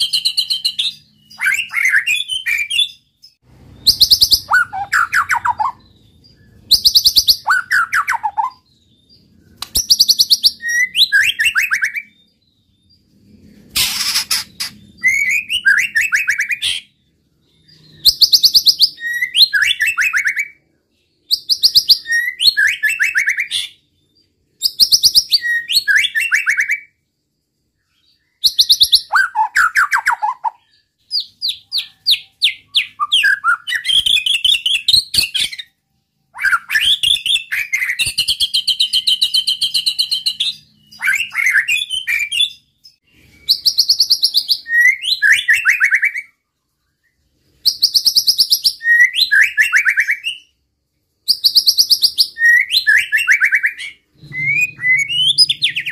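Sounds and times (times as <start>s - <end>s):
bird singing loudly: 0.0s - 8.7s, 13.8s - 17.0s, 36.4s - 46.3s, 47.8s - 50.5s, 51.3s - 55.9s.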